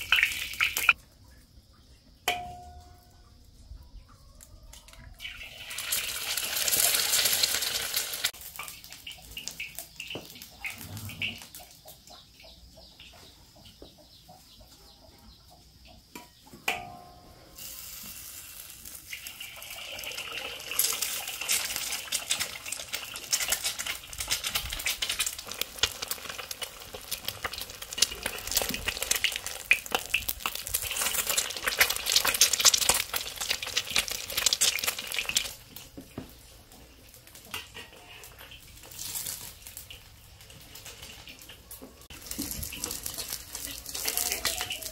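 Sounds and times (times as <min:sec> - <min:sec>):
egg sizzling in hot oil: 0:00.0 - 0:01.0, 0:05.2 - 0:11.4, 0:17.6 - 0:35.8, 0:37.2 - 0:44.9
single clink: 0:02.3 - 0:03.1.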